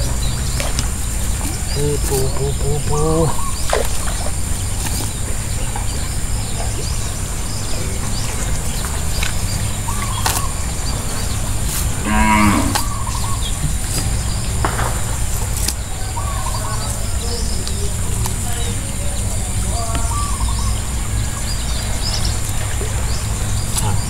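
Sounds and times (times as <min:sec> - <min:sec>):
low background rumble: 0:00.0 - 0:24.0
cow mooing: 0:12.0 - 0:13.1.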